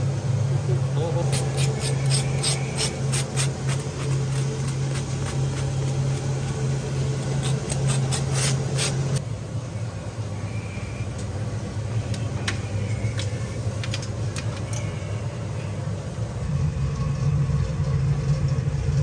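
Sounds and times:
low mechanical hum: 0:00.0 - 0:19.0
rasping scrapes and clicks: 0:07.2 - 0:09.2.

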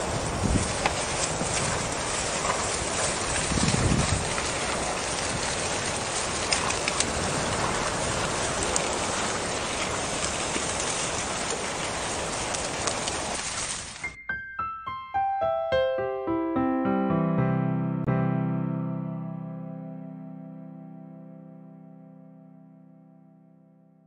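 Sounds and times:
horses galloping through grass: 0:00.0 - 0:14.2.

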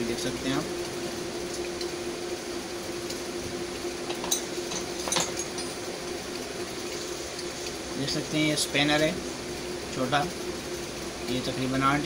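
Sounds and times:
steady background hum: 0:00.0 - 0:12.0
metal hand tools clinking: 0:04.2 - 0:05.8.

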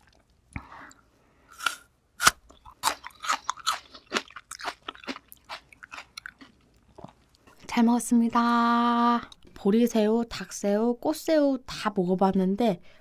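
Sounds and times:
crunchy chewing: 0:01.6 - 0:07.6.

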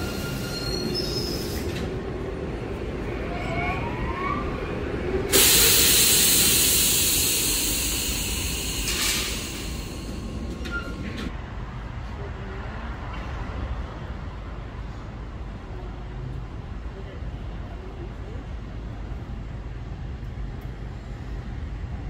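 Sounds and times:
train air hiss: 0:00.0 - 0:01.8, 0:05.3 - 0:10.9.

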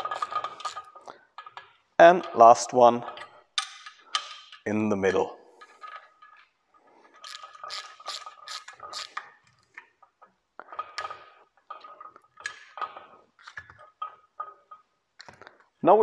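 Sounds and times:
wrench clicking on metal nuts: 0:00.0 - 0:01.7, 0:07.2 - 0:09.8.

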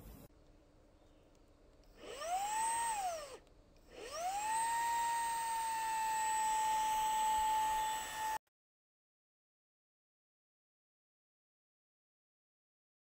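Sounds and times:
vacuum cleaner motor whine: 0:02.0 - 0:08.4.

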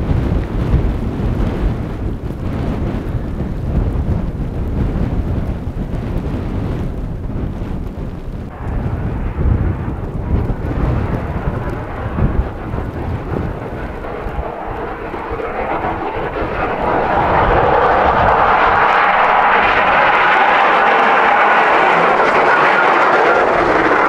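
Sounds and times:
wind gusting on microphone: 0:00.0 - 0:24.0
vehicle engine approaching: 0:08.5 - 0:24.0.

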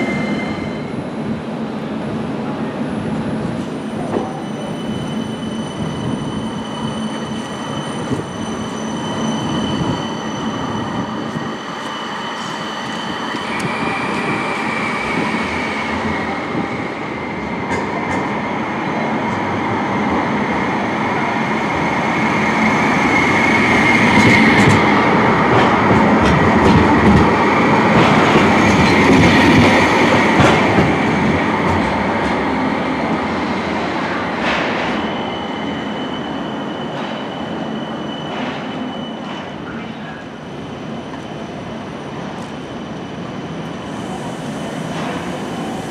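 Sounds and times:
tram high whine: 0:00.0 - 0:45.9.

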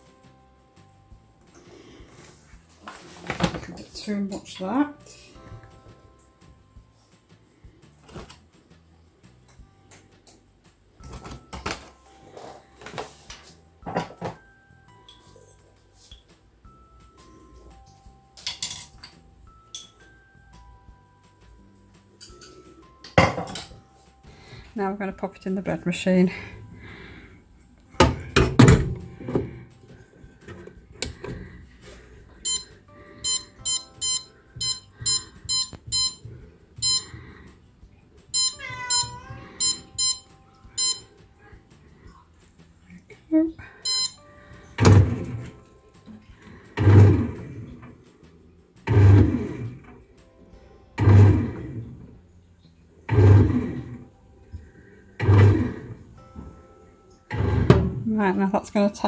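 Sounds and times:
short high beeps: 0:32.5 - 0:36.2, 0:36.8 - 0:37.1, 0:38.4 - 0:41.1, 0:43.9 - 0:44.2
cat meowing: 0:38.4 - 0:39.9
bread machine motor hum: 0:48.8 - 0:49.7, 0:51.0 - 0:51.8, 0:53.1 - 0:54.0, 0:55.2 - 0:55.9.

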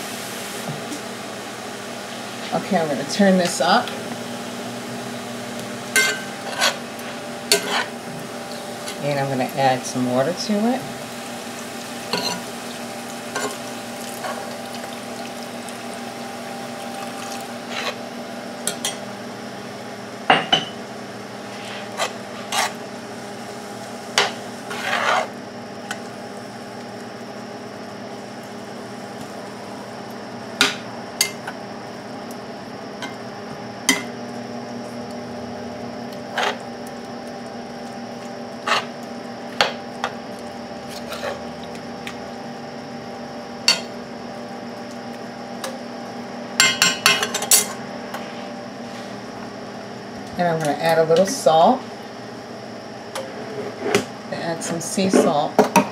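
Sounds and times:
steady hum: 0:00.0 - 0:55.9
metal spoon scraping skillet: 0:06.0 - 0:06.8, 0:07.5 - 0:08.0, 0:17.7 - 0:18.0, 0:21.5 - 0:22.8, 0:24.7 - 0:25.3.

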